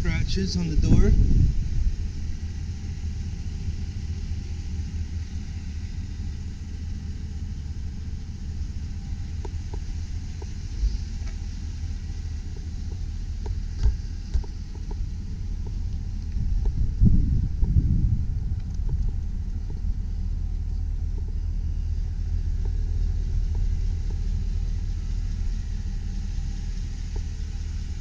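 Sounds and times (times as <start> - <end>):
pickup engine idling: 0.0 - 28.0.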